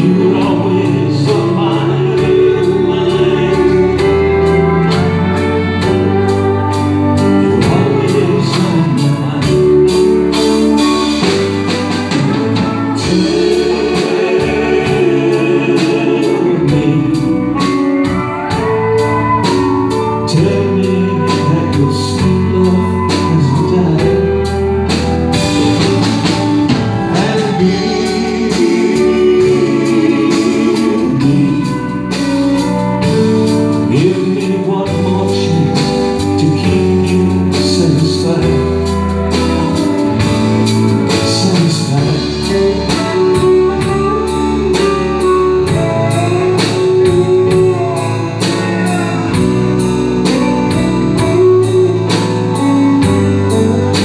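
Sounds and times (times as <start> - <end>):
country band playing ballad: 0.0 - 54.0.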